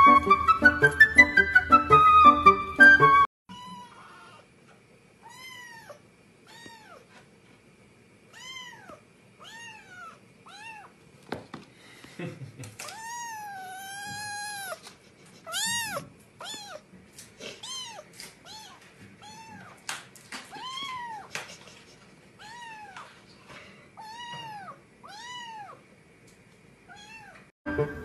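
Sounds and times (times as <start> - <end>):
cat meowing: 3.5 - 4.5, 5.2 - 7.1, 8.3 - 10.9, 12.8 - 14.8, 15.4 - 16.9, 17.5 - 19.8, 20.5 - 21.3, 22.4 - 23.1, 24.0 - 25.8, 26.9 - 27.5.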